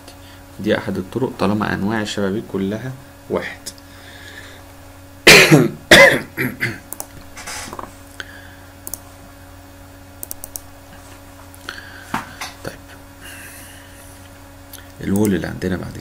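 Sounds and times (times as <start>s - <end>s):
man coughing: 5.2s - 6.8s.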